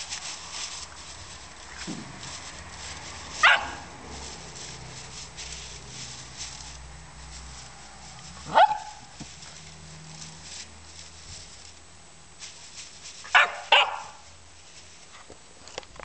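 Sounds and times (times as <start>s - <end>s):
puppy yapping: 3.4s - 3.9s, 8.4s - 9.1s, 13.3s - 14.2s.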